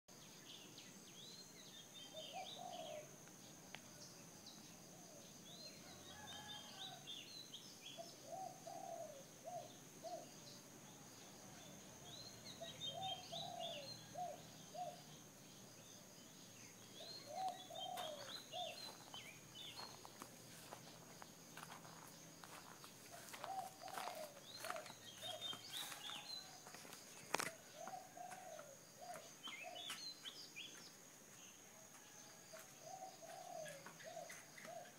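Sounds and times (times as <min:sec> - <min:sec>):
bird chirping: 0:00.1 - 0:34.9
dove cooing: 0:02.2 - 0:03.1, 0:08.2 - 0:10.3, 0:12.6 - 0:15.0, 0:17.2 - 0:19.0, 0:23.1 - 0:26.0, 0:27.4 - 0:29.9, 0:32.8 - 0:34.9.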